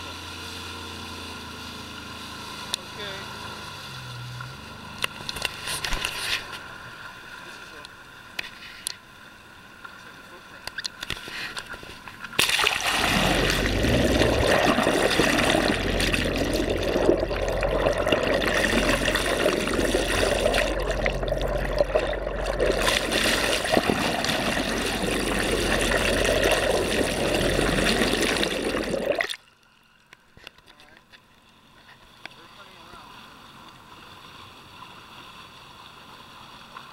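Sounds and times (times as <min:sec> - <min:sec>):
underwater rushing and gurgling: 0:11.2 - 0:29.5
low steady hum: 0:11.9 - 0:30.2.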